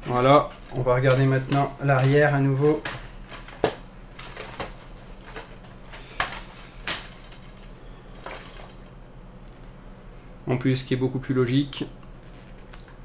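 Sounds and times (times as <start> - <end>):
faint low hum: 0.0 - 13.0
packaging taps and rustles: 0.1 - 9.7.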